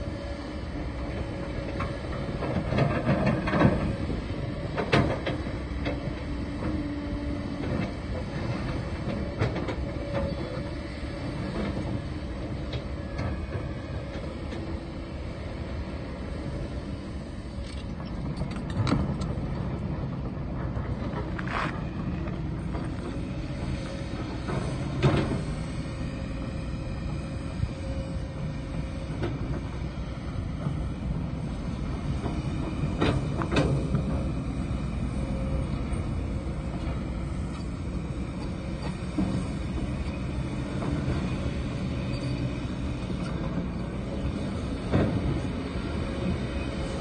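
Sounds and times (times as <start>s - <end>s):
excavator diesel engine running: 0.0s - 47.0s.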